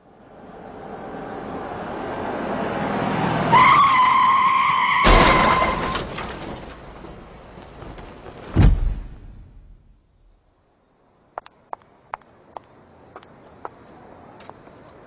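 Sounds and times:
tyres screeching: 0:03.5 - 0:06.8
car crash with shattering glass: 0:04.8 - 0:07.4.

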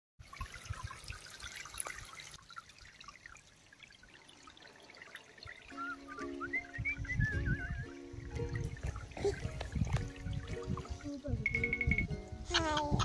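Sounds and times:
water trickling and splashing: 0:00.2 - 0:13.0
music with warbling melody: 0:05.5 - 0:13.0.

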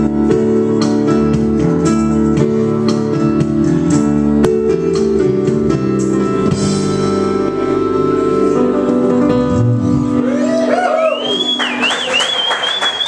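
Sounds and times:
audience cheering: 0:10.2 - 0:13.0
high wavering whistle: 0:10.4 - 0:13.0.

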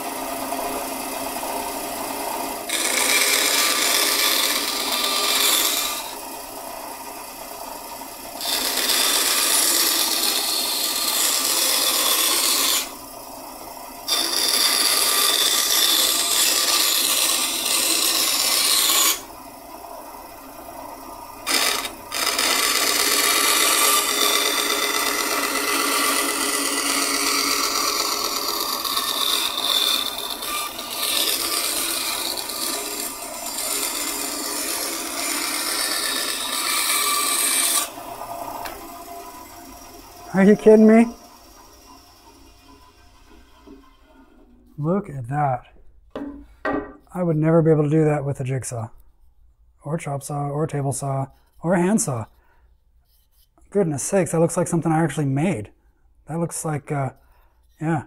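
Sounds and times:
bandsaw running quietly: 0:21.4 - 0:44.6.

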